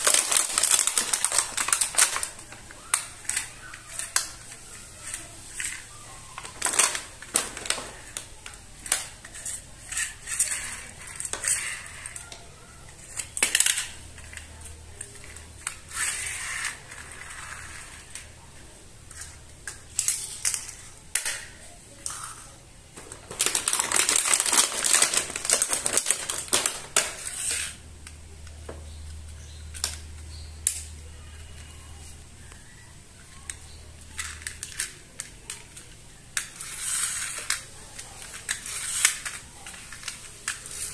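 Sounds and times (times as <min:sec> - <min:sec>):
rapid clicking and rustling: 0:00.0 - 0:18.3, 0:23.0 - 0:27.7
plastic toys clicking and rattling: 0:00.0 - 0:28.6, 0:29.2 - 0:40.9.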